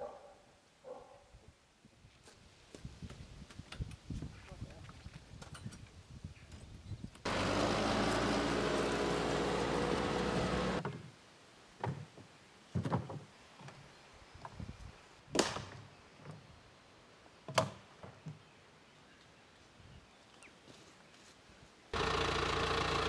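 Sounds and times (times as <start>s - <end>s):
tractor diesel engine running: 7.3s - 10.8s, 22.0s - 23.0s.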